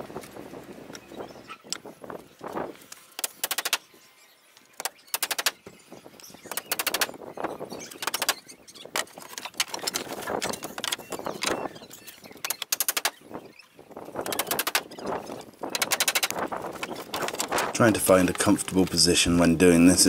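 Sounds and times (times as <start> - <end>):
hammer driving nails into wood: 3.2 - 3.8, 4.8 - 5.6, 6.6 - 7.1, 12.5 - 13.2.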